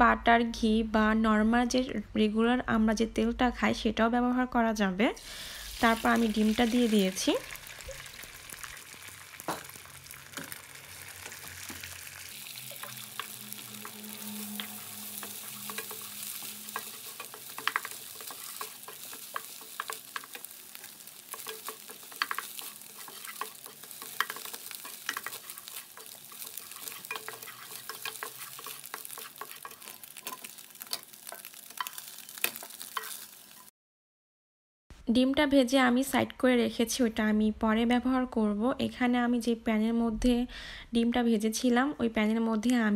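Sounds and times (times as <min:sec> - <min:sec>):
eggs sizzling in a pan: 0:05.2 - 0:33.7
wooden spatula scraping a pan: 0:10.4 - 0:33.7.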